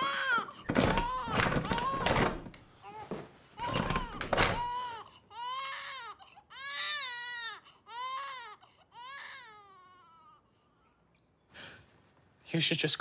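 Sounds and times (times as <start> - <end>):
infant crying: 0.0 - 2.0, 2.8 - 11.0.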